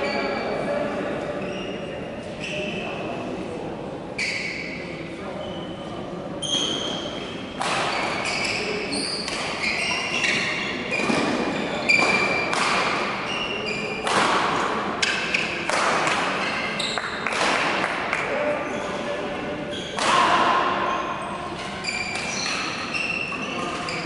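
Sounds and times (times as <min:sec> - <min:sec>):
shoes squeaking on floor: 0:01.4 - 0:03.0, 0:04.2 - 0:04.8, 0:06.4 - 0:14.1, 0:16.4 - 0:17.2, 0:18.6 - 0:20.0, 0:20.8 - 0:24.0
racket hitting shuttlecock: 0:07.6 - 0:08.6, 0:09.2 - 0:09.8, 0:10.4 - 0:16.6, 0:17.2 - 0:18.1, 0:19.9 - 0:20.9.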